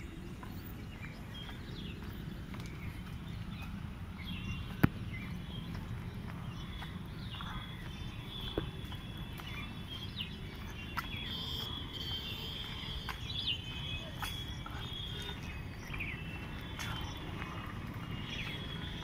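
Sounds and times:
birds chirping: 0.0s - 19.0s
continuous low rumble: 0.0s - 19.0s.

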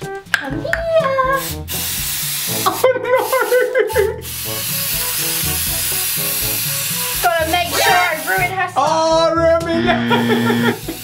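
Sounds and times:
aerosol spray hissing: 1.2s - 8.8s, 10.1s - 11.0s.

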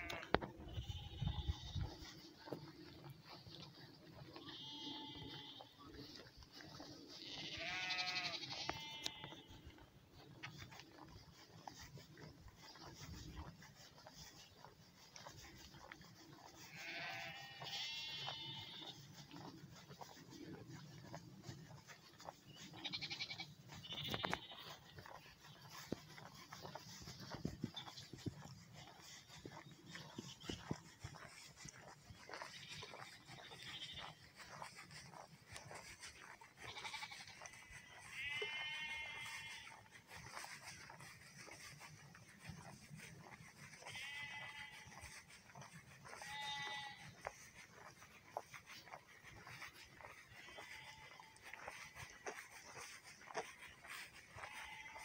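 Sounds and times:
sheep bleating faintly: 0.0s - 3.0s, 4.2s - 6.5s, 7.1s - 11.1s, 15.8s - 20.1s, 28.8s - 35.1s, 35.8s - 48.0s, 48.8s - 55.0s.

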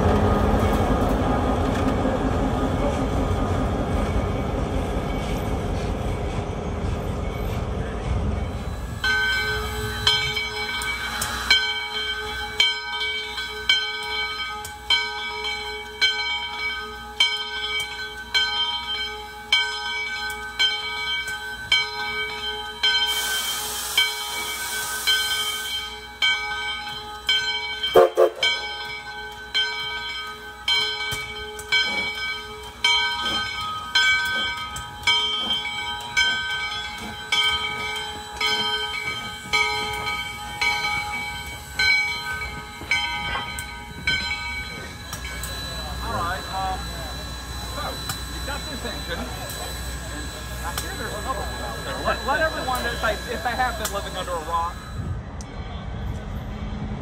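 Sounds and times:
steam locomotive bell ringing: 2.5s - 55.2s
steam hissing: 8.5s - 13.7s, 22.8s - 26.2s, 31.8s - 55.0s.

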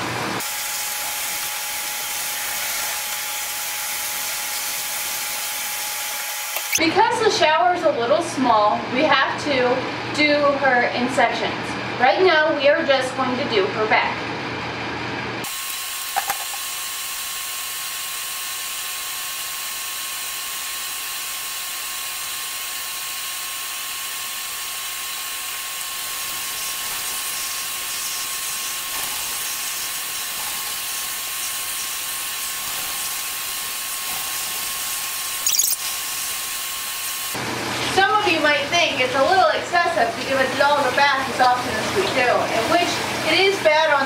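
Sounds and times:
shower sprayer hissing: 0.4s - 6.8s, 22.6s - 37.4s.

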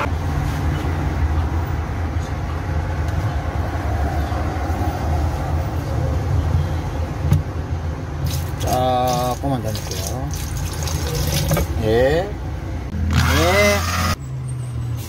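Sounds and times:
batter churning: 8.2s - 11.7s.

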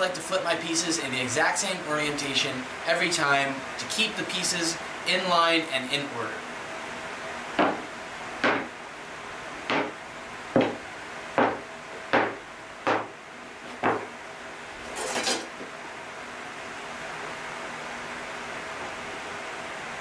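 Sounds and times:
wood pieces scraping: 14.9s - 15.6s.

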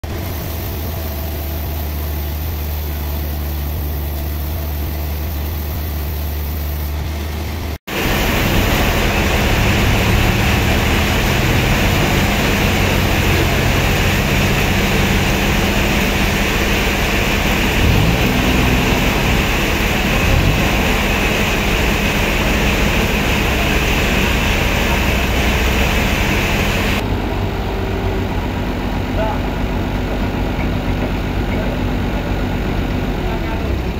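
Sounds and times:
hiss: 0.0s - 7.0s, 7.9s - 27.0s
forklift engine revving: 0.0s - 33.9s
low machine hum: 0.0s - 33.9s.

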